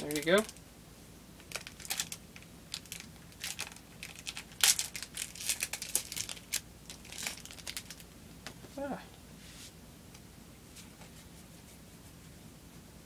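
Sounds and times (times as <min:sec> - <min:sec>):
wrapper crinkling and tearing: 0:01.4 - 0:08.0.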